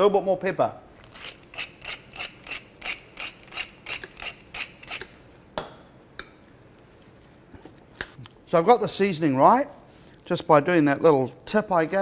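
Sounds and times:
pepper mill grinding: 1.0s - 5.1s.

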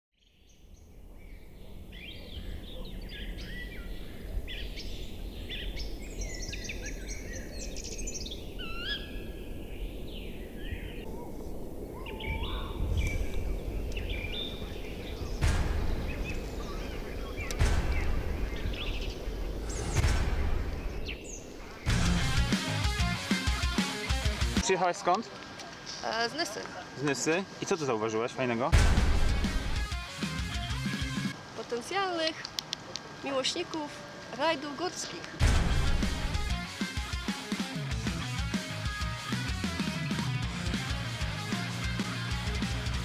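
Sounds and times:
birds chirping and singing: 0.2s - 24.7s
steady low rumble: 1.8s - 22.6s, 28.7s - 29.8s
loud thumps: 15.4s - 21.1s, 28.7s - 30.7s, 35.4s - 36.6s.

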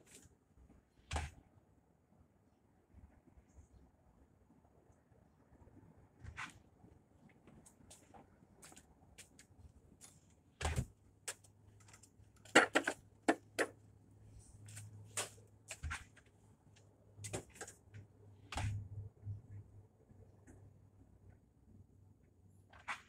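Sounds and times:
faint low hum: 0.0s - 22.7s.

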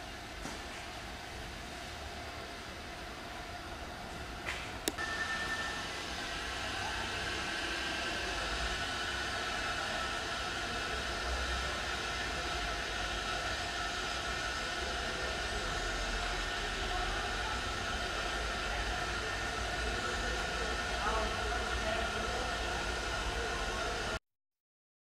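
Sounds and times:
mechanical hum and hiss: 0.0s - 24.2s
thin high whine: 5.0s - 11.6s.

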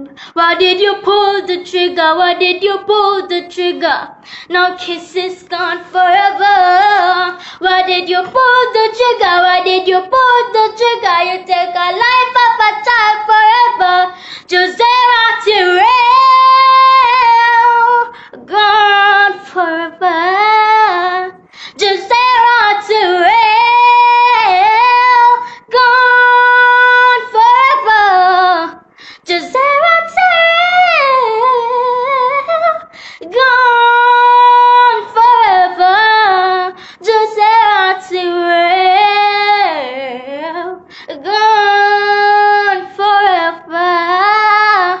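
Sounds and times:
girl singing unaccompanied: 0.0s - 45.0s.

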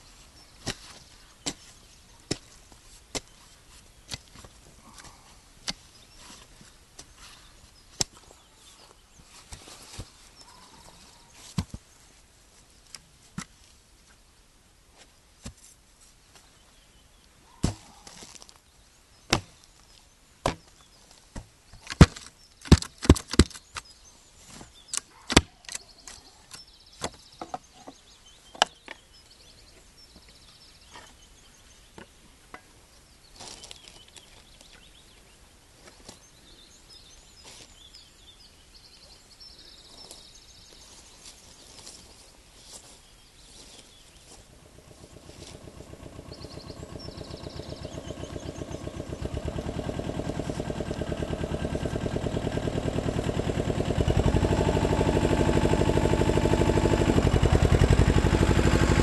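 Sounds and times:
soil clods thrown: 0.6s - 3.4s, 17.6s - 18.6s
spade striking and scraping soil: 0.6s - 3.4s, 4.1s - 7.2s, 17.6s - 18.6s.

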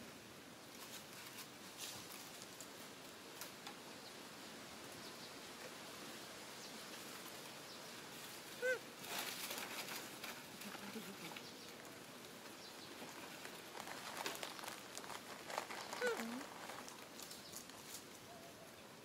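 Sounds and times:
rustling: 0.7s - 3.8s, 6.8s - 18.3s
monkey coo: 8.6s - 8.9s, 10.6s - 11.4s, 16.0s - 16.5s.

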